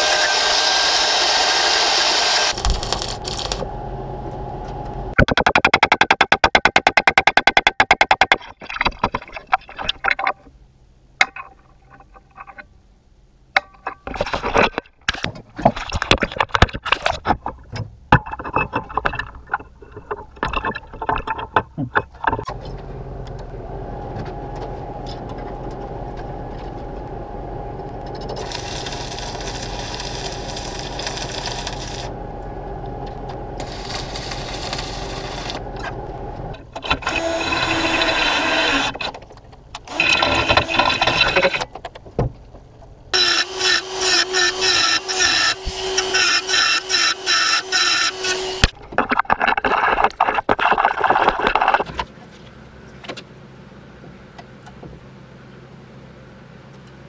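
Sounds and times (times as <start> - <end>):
stick welding crackling: 2.3 - 3.7, 28.0 - 32.2, 33.6 - 37.3
electrical hum: 2.4 - 5.2, 16.8 - 57.0.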